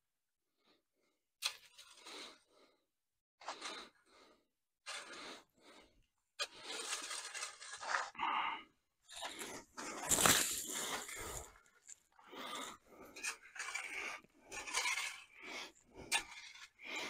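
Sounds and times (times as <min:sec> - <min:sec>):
shovel scraping concrete mix: 0:06.4 - 0:08.2, 0:13.2 - 0:15.4.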